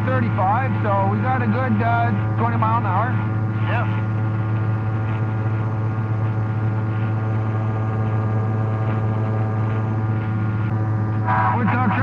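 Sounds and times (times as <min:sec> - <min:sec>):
aircraft engine droning: 0:00.0 - 0:12.0.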